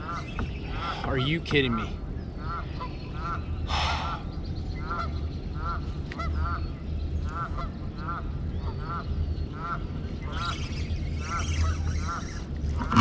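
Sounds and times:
geese honking: 2.4s - 4.2s, 7.3s - 13.0s.

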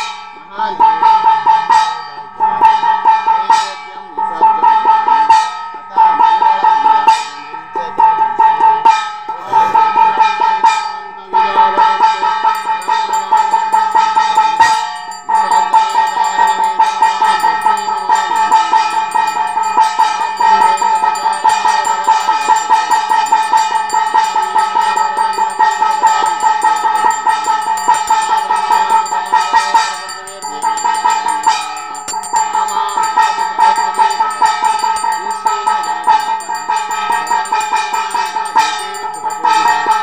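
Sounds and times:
hand bell ringing rapidly: 12.0s - 40.0s
higher bell ringing: 12.0s - 40.0s.

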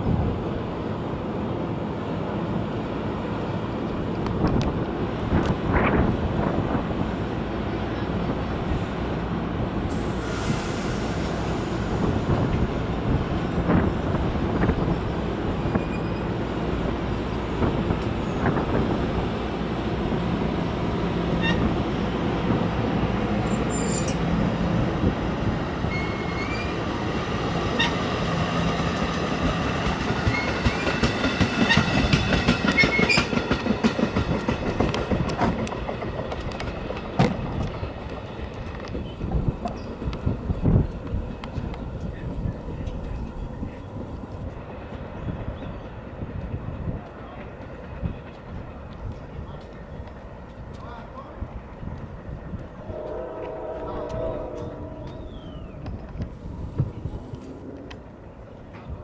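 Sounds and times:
train wheels rumbling on rail: 0.0s - 59.0s
high-pitched wheel squeal: 15.7s - 16.3s, 23.4s - 24.2s, 25.9s - 26.8s, 53.5s - 55.8s.

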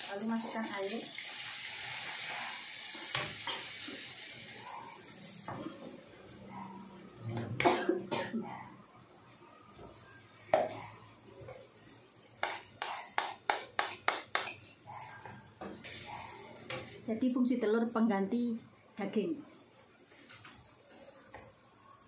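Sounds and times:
water sizzling in hot pan: 0.0s - 6.4s, 15.7s - 22.0s
spatula stirring and scraping pan: 10.6s - 17.1s
spatula knocking on pan: 12.4s - 14.6s.

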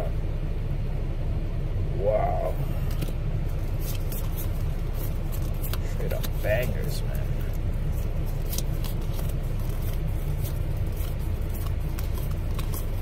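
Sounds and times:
diesel truck engine idling: 0.0s - 13.0s
trading cards flipped: 2.8s - 13.0s.

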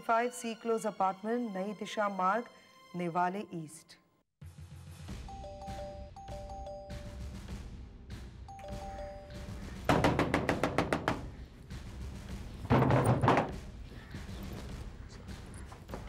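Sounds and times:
two-tone doorbell chime: 5.3s - 7.2s, 8.5s - 9.5s
knocking on wooden door: 9.8s - 11.4s, 12.6s - 13.7s.

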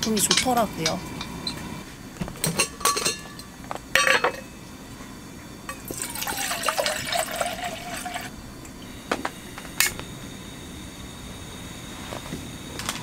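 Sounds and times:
camping cookware clinking: 0.0s - 1.7s, 2.4s - 4.5s
water pouring into vessel: 5.8s - 8.3s.

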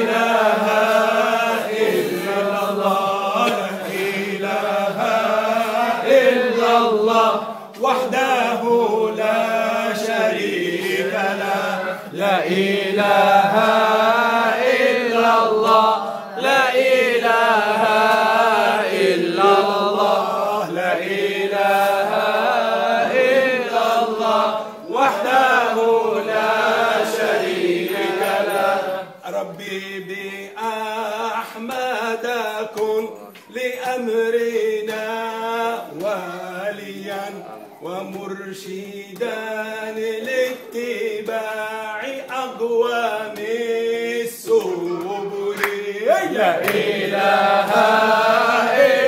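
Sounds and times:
man chanting unaccompanied: 0.0s - 49.0s.

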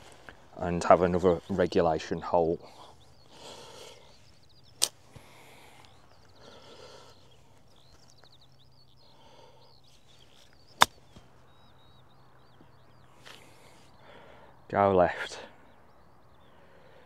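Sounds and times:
golf club striking ball: 10.7s - 11.1s.

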